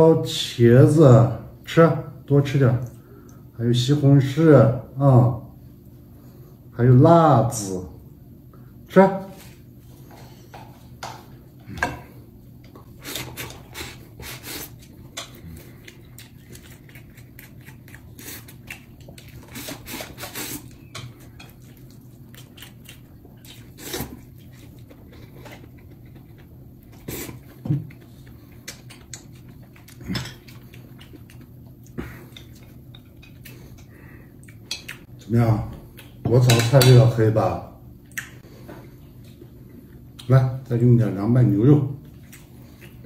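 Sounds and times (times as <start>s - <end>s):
steady low hum: 0.0s - 43.0s
chewing: 12.7s - 36.2s, 42.0s - 43.0s.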